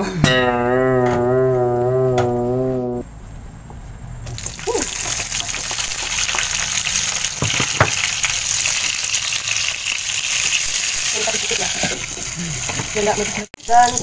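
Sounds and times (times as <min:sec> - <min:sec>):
vegetables sizzling in hot oil: 0:04.3 - 0:14.0.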